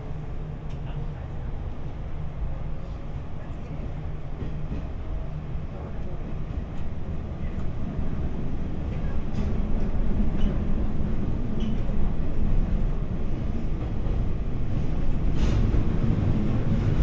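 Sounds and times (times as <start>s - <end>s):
train wheels rumbling on rail: 0.0s - 17.0s.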